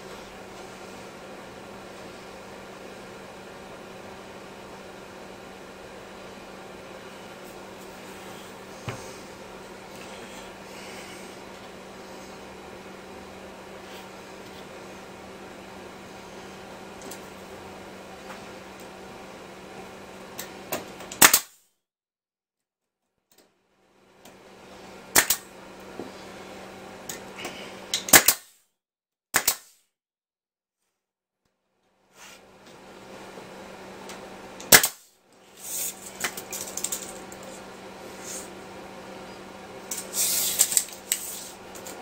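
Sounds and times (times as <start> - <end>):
nail gun shots: 21.1 - 21.6, 25.2 - 25.4, 28.1 - 28.6, 29.4 - 29.8, 34.7 - 35.1.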